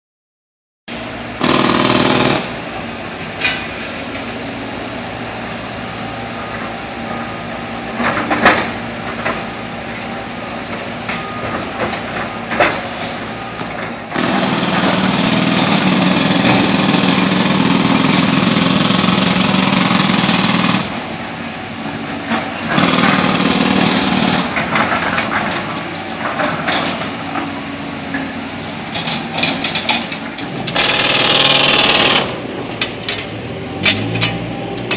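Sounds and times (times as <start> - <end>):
concrete breaker hammering: 1.4 - 2.6, 14.1 - 20.9, 22.7 - 25.2.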